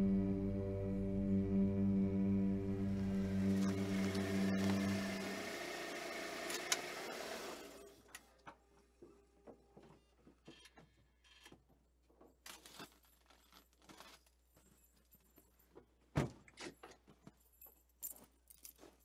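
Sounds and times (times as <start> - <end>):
held musical tone: 0.0 - 6.7
keys clicking and rattling: 16.8 - 19.0.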